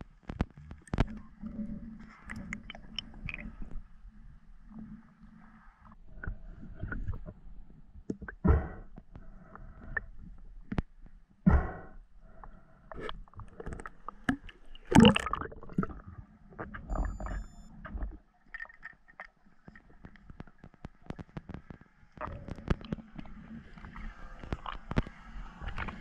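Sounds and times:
underwater clicks and knocks: 0:00.2 - 0:03.8, 0:08.0 - 0:09.2, 0:12.9 - 0:16.0, 0:16.6 - 0:26.0.

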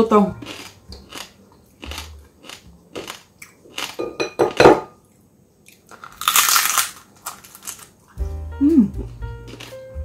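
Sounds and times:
crispy skin crunching in mouth: 0:00.4 - 0:04.0, 0:05.7 - 0:08.0, 0:09.4 - 0:09.9.

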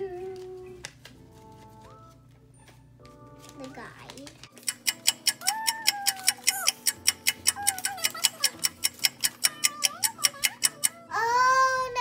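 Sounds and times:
rapid clock-like ticking: 0:04.6 - 0:11.1.

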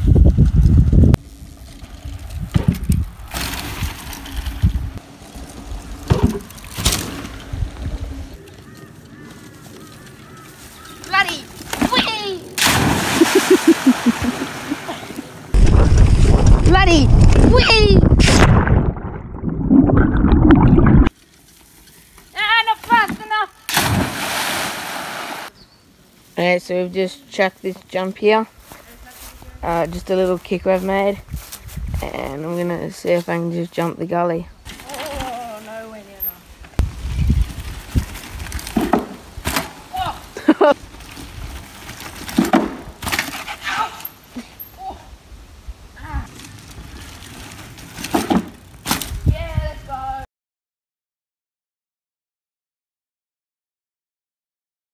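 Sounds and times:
wind rushing over camera: 0:00.0 - 0:06.1, 0:15.2 - 0:21.1, 0:31.2 - 0:32.0, 0:36.6 - 0:39.5
bike tyres rumbling on grass: 0:00.0 - 0:17.6, 0:36.7 - 0:43.7
bike clattering thumps: 0:02.4 - 0:04.7, 0:06.0 - 0:07.5, 0:38.5 - 0:39.8, 0:42.0 - 0:43.5, 0:47.9 - 0:49.2
loud splash: 0:12.6 - 0:14.9, 0:18.1 - 0:21.1, 0:23.7 - 0:25.5
person yelling: 0:39.9 - 0:40.3, 0:43.6 - 0:44.1.

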